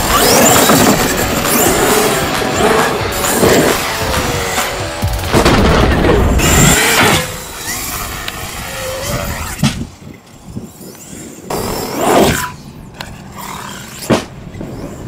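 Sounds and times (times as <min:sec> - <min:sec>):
electric motor whining: 0:00.0 - 0:12.0
tyre and landing noise: 0:02.4 - 0:07.3, 0:14.0 - 0:14.7.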